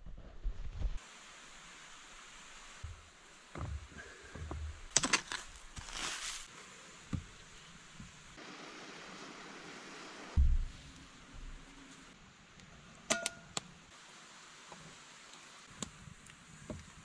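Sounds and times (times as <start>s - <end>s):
steady hiss: 1.0s - 17.0s
heavy thump: 10.4s - 10.8s.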